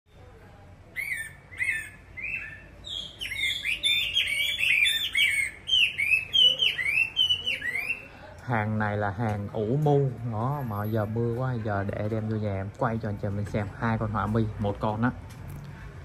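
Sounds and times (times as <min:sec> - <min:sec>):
bird singing whistled notes: 0:01.0 - 0:08.1.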